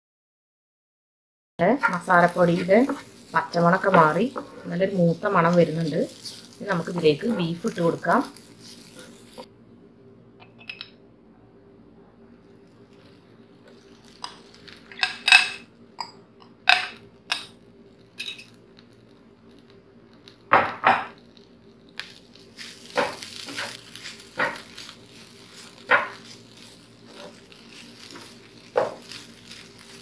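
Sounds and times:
food sizzling: 1.6s - 9.5s, 12.4s - 30.0s
spatula scraping a pan: 1.7s - 9.5s, 22.6s - 30.0s
spoon clinking on glass and pan: 10.4s - 10.9s, 14.2s - 17.6s, 18.2s - 18.6s.

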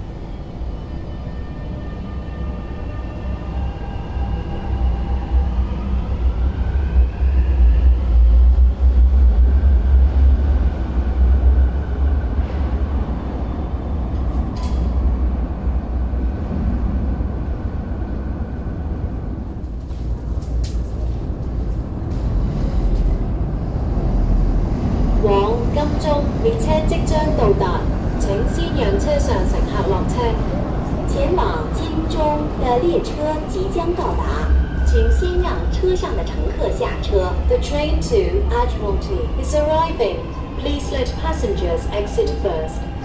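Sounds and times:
heavy low train rumble: 0.0s - 43.0s.

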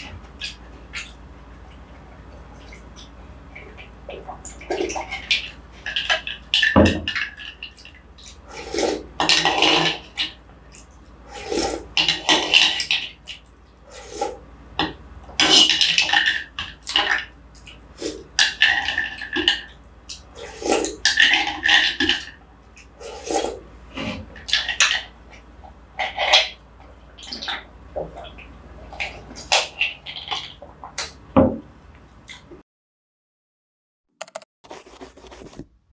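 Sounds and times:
slurping and sipping: 8.3s - 10.1s, 11.3s - 11.9s, 13.9s - 14.4s, 18.0s - 18.9s, 23.0s - 24.7s.

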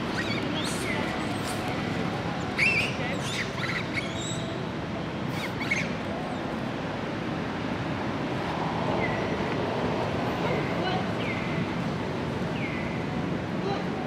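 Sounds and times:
high-pitched wavering animal calls: 2.4s - 4.6s.

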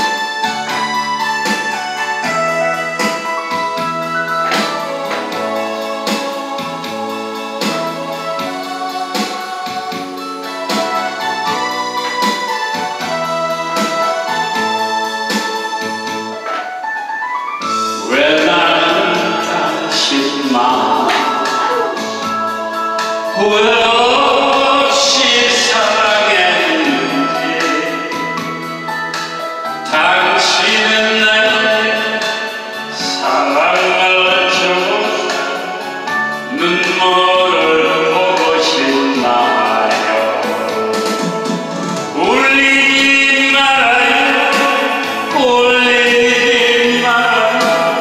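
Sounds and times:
backing track with steady beat: 0.0s - 48.0s
keyboard-led instrumental: 0.0s - 48.0s
lead melody with vibrato: 0.0s - 48.0s
man singing into microphone: 18.0s - 41.4s, 42.0s - 48.0s.

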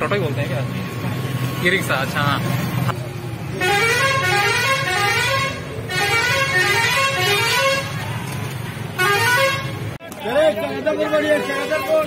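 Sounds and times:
low traffic rumble: 0.0s - 12.0s
musical vehicle horn: 3.6s - 8.0s, 9.0s - 9.9s.

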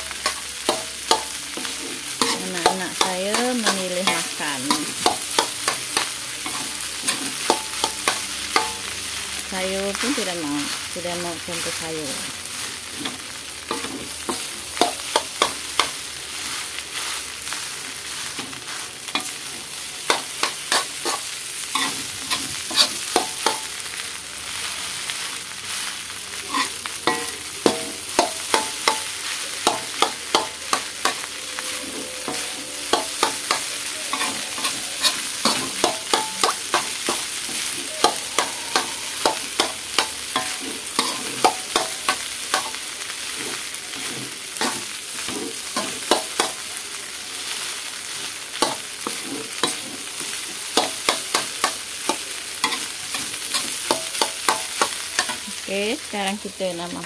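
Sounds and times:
rice sizzling in a wok: 0.0s - 57.0s
metal spoon scraping a wok: 0.1s - 8.9s, 17.4s - 24.0s, 25.9s - 46.6s, 48.6s - 55.6s.

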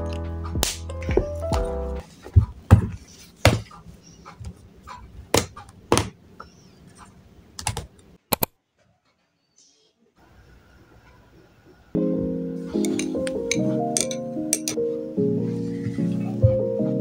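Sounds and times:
lofi background music: 0.0s - 2.0s, 12.0s - 17.0s.

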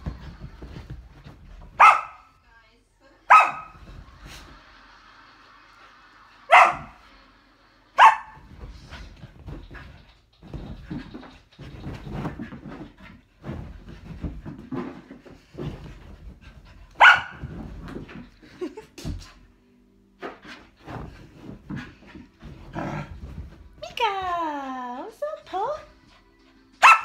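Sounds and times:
puppy scrabbling on cushions: 0.0s - 2.4s, 3.4s - 4.6s, 8.1s - 19.4s, 20.2s - 24.3s
puppy barking: 1.8s - 2.3s, 3.3s - 3.8s, 6.5s - 7.0s, 8.0s - 8.4s, 17.0s - 17.4s, 26.8s - 27.0s
puppy play growls: 21.0s - 23.6s.

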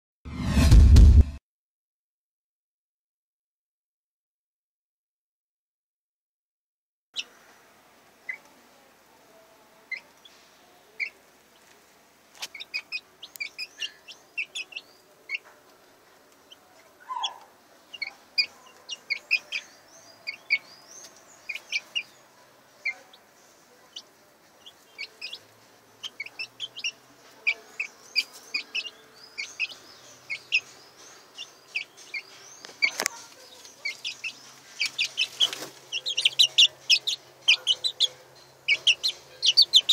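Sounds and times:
sharp knock: 0.3s - 1.4s
chicks peeping: 7.2s - 7.6s, 8.2s - 8.6s, 9.8s - 39.9s.

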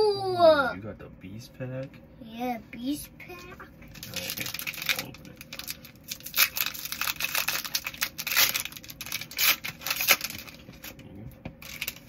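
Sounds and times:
foil wrapper tearing and crinkling: 3.9s - 11.0s, 11.6s - 12.0s.

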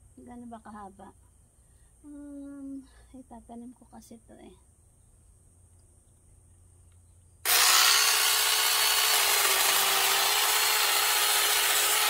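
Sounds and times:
cordless mini chainsaw running: 7.4s - 12.0s
chainsaw chain cutting branch: 7.5s - 12.0s.

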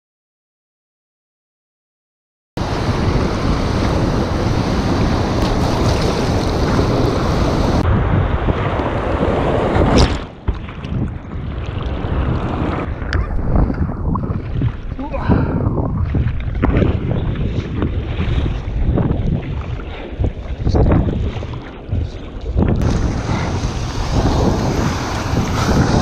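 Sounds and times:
surf roaring: 2.6s - 10.2s, 22.8s - 26.0s
wind buffeting microphone: 2.6s - 26.0s
water sloshing and splashing: 4.9s - 7.8s, 8.5s - 26.0s.

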